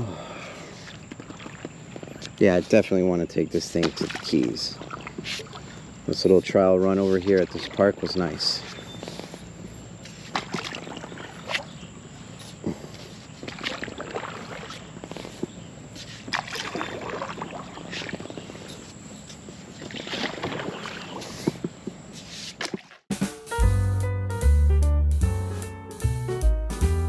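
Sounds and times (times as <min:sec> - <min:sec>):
paddle splashing in water: 0:00.6 - 0:02.4, 0:03.6 - 0:05.9, 0:06.8 - 0:23.1.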